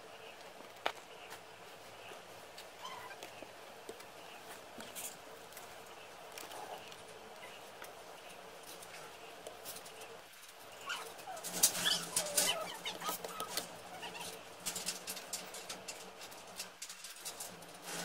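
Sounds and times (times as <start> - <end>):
background calls rising and falling: 10.0 - 15.4.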